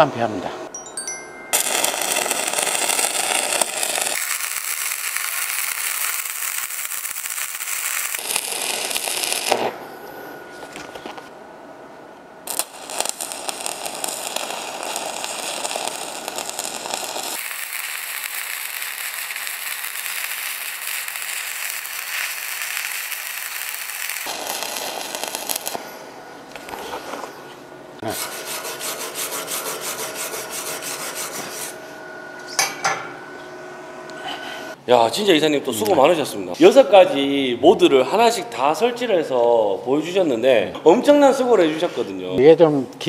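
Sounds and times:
welding arc crackling: 1.6s - 9.8s, 12.4s - 25.8s.

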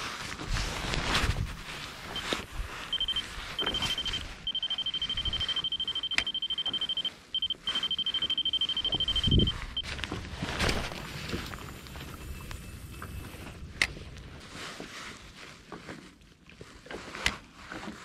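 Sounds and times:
high electronic alarm beeping: 2.2s - 9.9s.

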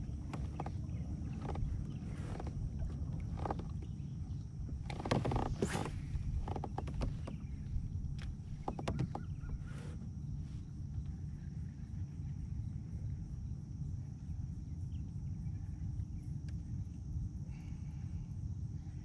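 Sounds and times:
insects droning: 0.0s - 19.0s
low rumble: 0.0s - 19.0s.

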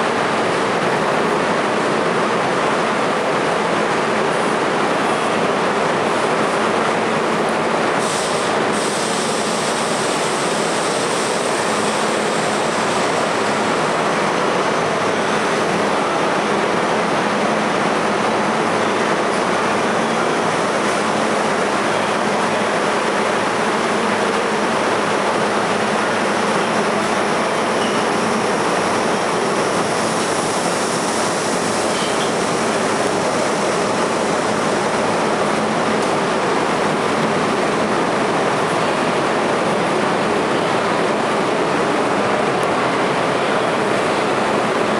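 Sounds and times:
subway train wheels rumbling on rails: 0.0s - 44.9s.

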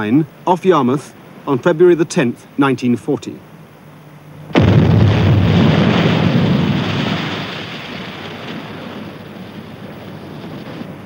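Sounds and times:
underwater explosion rumbling: 4.5s - 10.8s.

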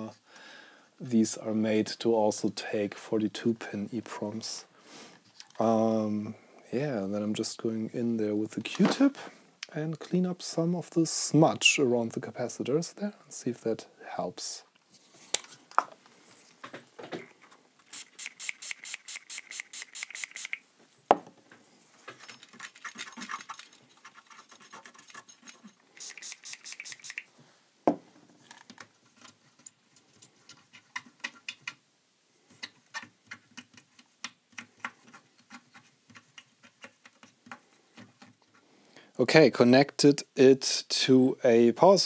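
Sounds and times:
cotton swab scraping circuit board: 22.6s - 27.2s.

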